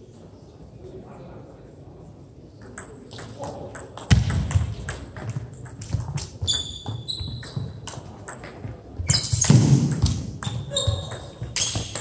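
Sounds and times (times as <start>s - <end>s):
table tennis balls clicking: 2.6s - 12.0s
high squeak: 6.5s - 7.7s, 10.4s - 12.0s.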